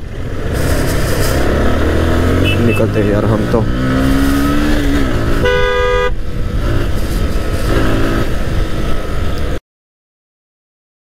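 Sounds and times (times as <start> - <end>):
road noise from motorcycle: 0.0 - 9.6
vehicle horn honking: 2.4 - 2.9, 5.4 - 6.2.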